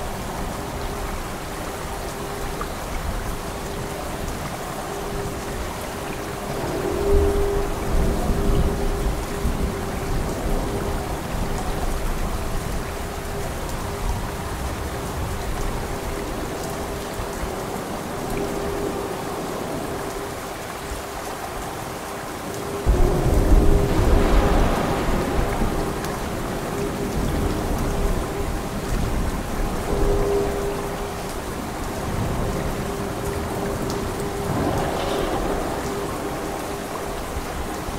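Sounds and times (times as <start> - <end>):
heavy rain falling: 0.0 - 37.9
thunder clap and rumble: 22.9 - 29.9, 31.5 - 37.9.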